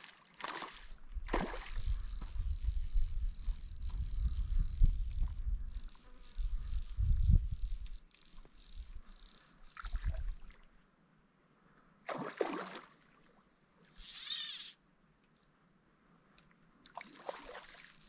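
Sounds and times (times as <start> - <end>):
water splashing: 0.0 - 1.8, 12.1 - 12.9, 17.0 - 17.9.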